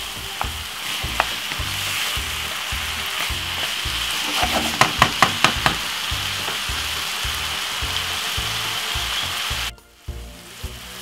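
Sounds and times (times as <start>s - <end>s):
meat sizzling in frying pan: 0.0s - 11.0s
wooden spoon knocking pan: 0.4s - 7.8s.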